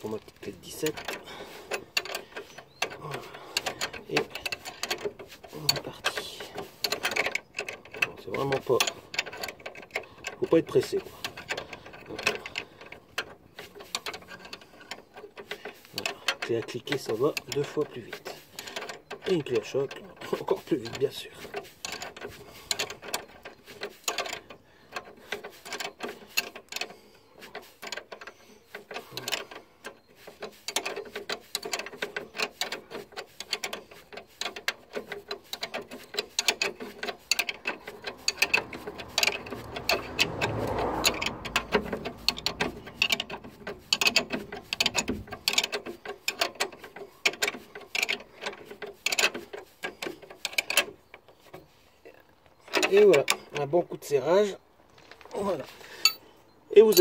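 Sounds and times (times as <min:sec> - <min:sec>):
ratchet wrench clicking: 0:30.2 - 0:51.0.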